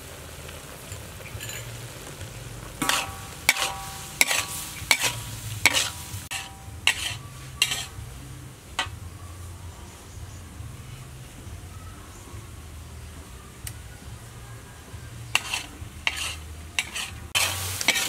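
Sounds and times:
sizzle of frying: 0.0s - 18.0s
metal spatula scraping a wok: 1.3s - 1.9s, 2.8s - 8.2s, 8.8s - 9.0s, 15.2s - 18.0s.

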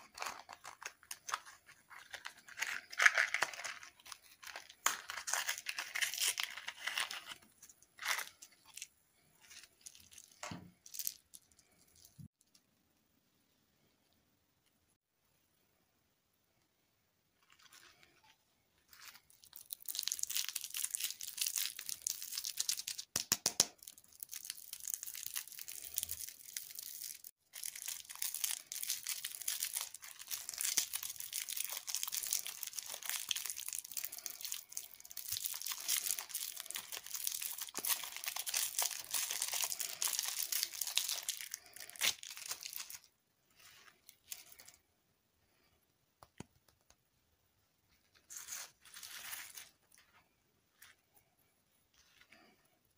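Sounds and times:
plastic wrapper crinkling: 0.0s - 12.3s, 17.4s - 23.1s, 23.7s - 44.8s, 48.1s - 50.9s.

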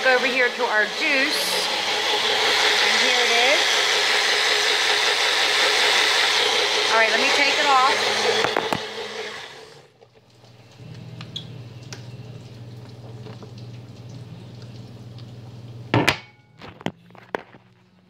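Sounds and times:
blender winding down: 0.0s - 9.9s.

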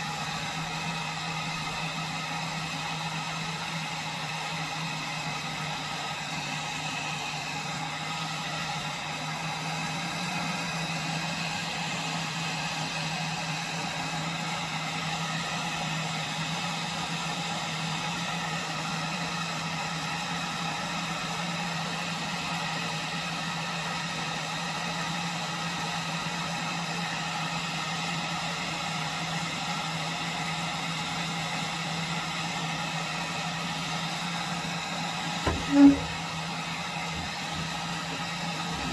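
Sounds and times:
gas stove burner hissing: 34.0s - 38.9s.

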